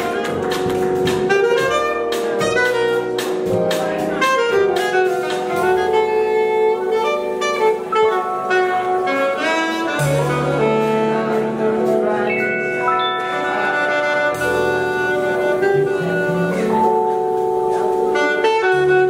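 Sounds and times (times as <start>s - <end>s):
drums: 0.0s - 19.0s
piano: 0.0s - 19.0s
upright bass: 0.0s - 19.0s
saxophone long held notes: 4.1s - 19.0s.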